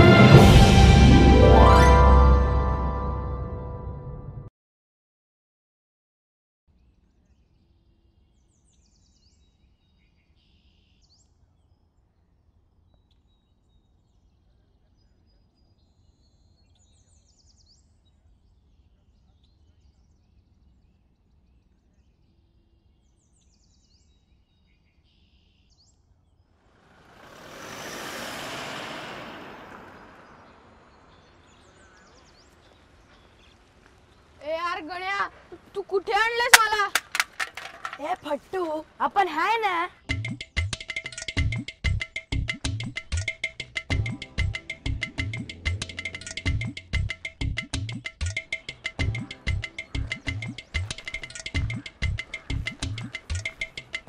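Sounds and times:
vehicle rushing past: 26.7 - 33.8, 44.8 - 46.6
birds chirping: 26.7 - 40.7, 44.0 - 54.0.

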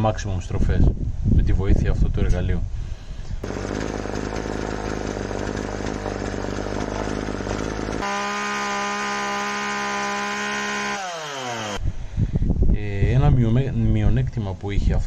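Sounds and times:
chainsaw engine running: 3.4 - 11.8.

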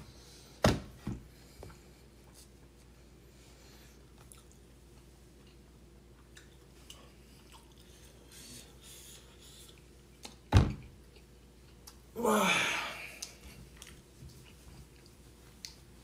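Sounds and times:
faint chewing: 4.0 - 12.0, 13.2 - 15.9.

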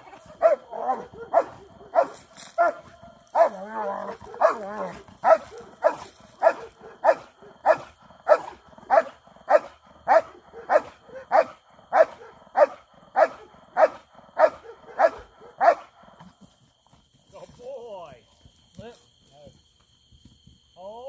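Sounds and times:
dog barking: 0.0 - 16.0.

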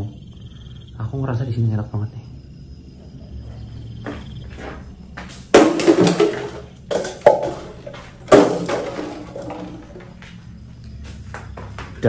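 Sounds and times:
hard objects knocking and clattering: 4.2 - 10.4.

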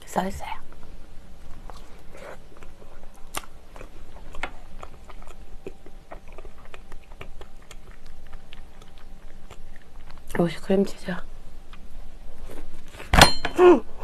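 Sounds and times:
chewing soft bread: 1.4 - 10.7
lip and tongue clicks: 2.6 - 10.4.

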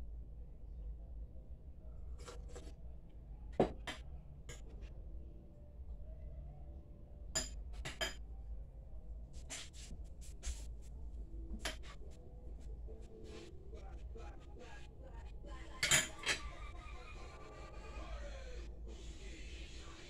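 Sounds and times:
utensil clinking against bowl and plate: 7.4 - 8.2, 15.7 - 16.5.

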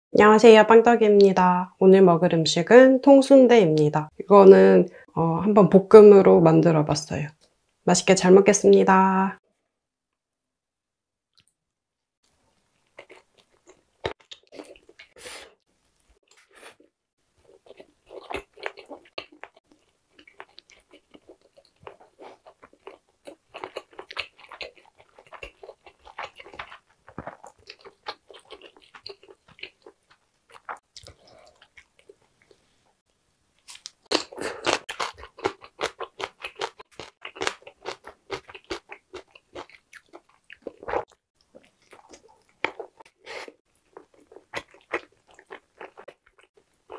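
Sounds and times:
biting and chewing: 17.4 - 32.6, 33.7 - 46.9.

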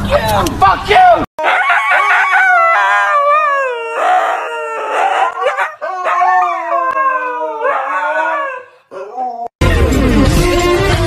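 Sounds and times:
husky howling: 1.4 - 9.5.

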